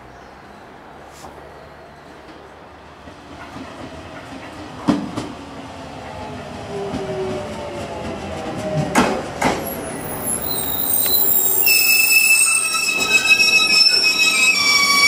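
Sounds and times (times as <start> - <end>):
high squeal of braking wheels: 9.6 - 15.0.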